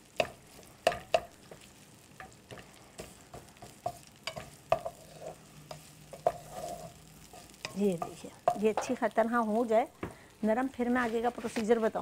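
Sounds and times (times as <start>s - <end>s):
onion sizzling in oil: 0.0s - 12.0s
wooden spatula scraping pan: 0.2s - 9.0s.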